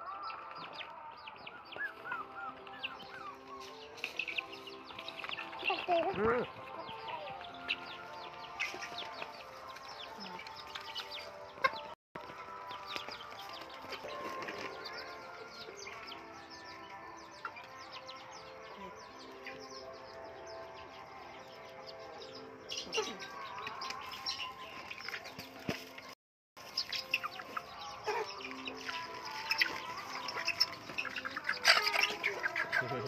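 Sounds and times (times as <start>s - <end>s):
chickens clucking and cheeping: 0.0s - 33.0s
soft background music: 0.0s - 33.0s
beaks tapping feed: 0.3s - 11.9s, 22.7s - 33.0s.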